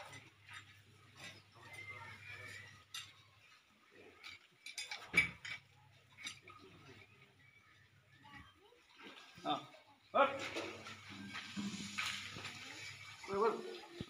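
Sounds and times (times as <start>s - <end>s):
faint voices: 0.0s - 14.0s
light knocks and clinks: 4.2s - 6.9s.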